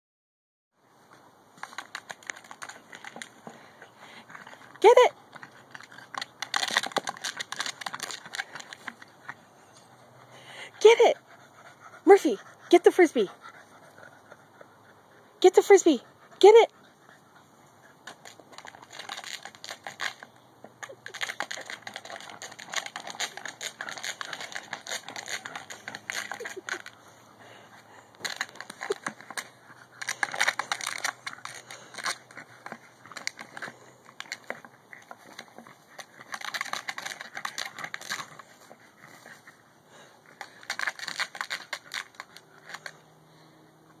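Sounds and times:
dog chewing plastic frisbee: 1.5s - 9.5s, 16.5s - 43.3s.

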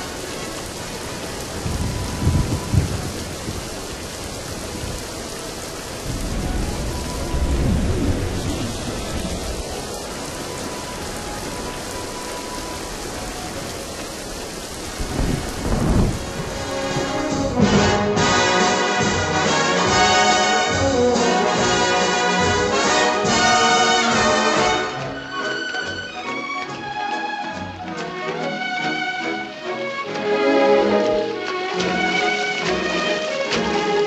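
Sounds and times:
thunder rumbling: 0.0s - 25.2s
steady rain: 0.0s - 34.0s.

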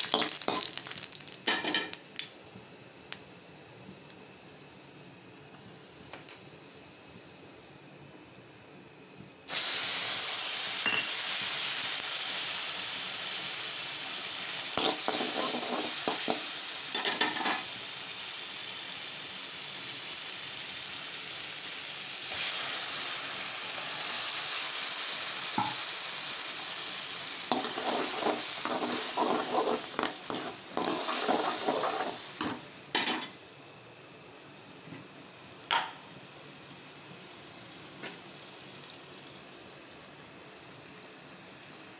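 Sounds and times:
hot oil sizzling in pot: 0.0s - 2.4s, 9.4s - 41.9s
spoon scraping pot: 27.5s - 32.2s.

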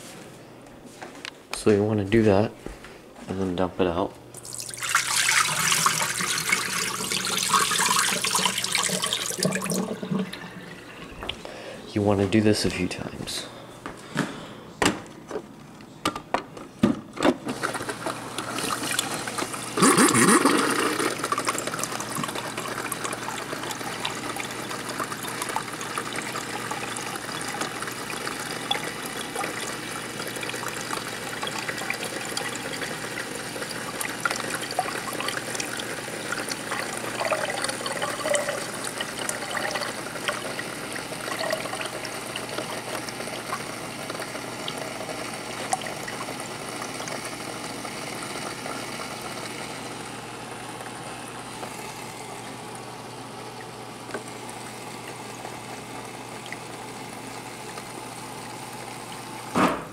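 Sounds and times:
water running into a glass: 4.4s - 11.4s, 18.2s - 52.1s.

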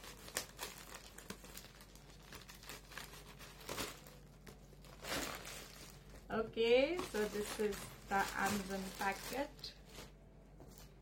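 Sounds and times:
scissors cutting packet: 0.0s - 5.3s
packaging rustling: 0.0s - 11.0s.

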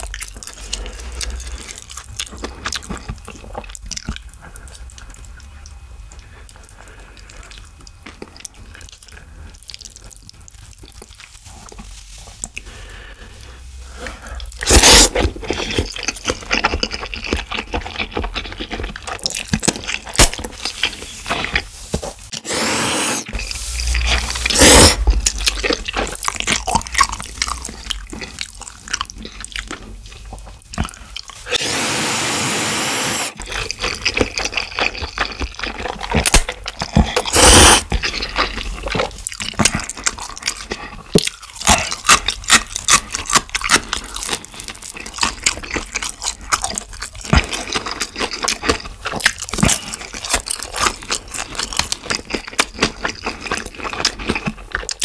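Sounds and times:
wet chewing and smacking: 0.0s - 22.4s, 23.3s - 31.6s, 33.4s - 55.0s
noodle slurps: 14.0s - 15.9s, 22.3s - 28.6s, 37.0s - 38.2s.

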